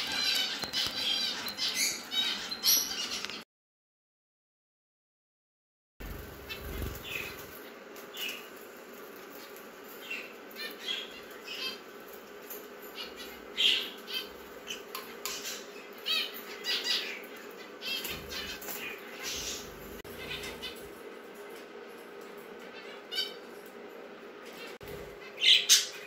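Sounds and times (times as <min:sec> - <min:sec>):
birds chirping and squawking: 0:00.0 - 0:03.4, 0:06.0 - 0:21.5, 0:22.1 - 0:26.0
low hum: 0:06.0 - 0:07.6.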